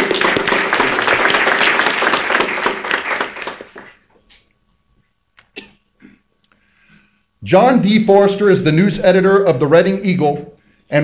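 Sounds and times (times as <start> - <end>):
audience applause: 0.0 - 4.1.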